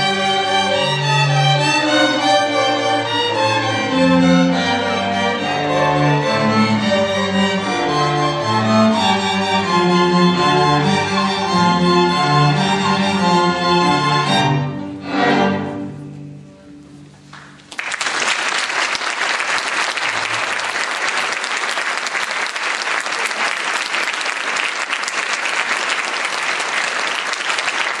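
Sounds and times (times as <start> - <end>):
string orchestra playing: 0.0 - 17.3
audience applause: 17.3 - 28.0.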